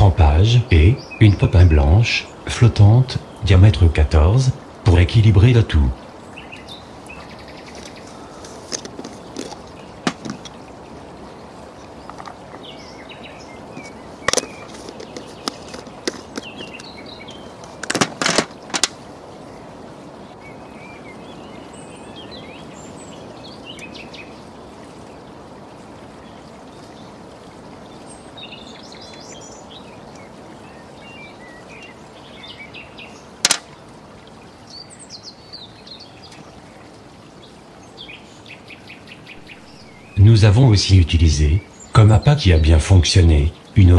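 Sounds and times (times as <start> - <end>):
background hiss: 0.0 - 43.9
small birds chirping: 0.0 - 43.9
sharp clicks and knocks: 8.6 - 10.6, 13.8 - 16.9, 17.7 - 19.0, 33.4 - 33.7.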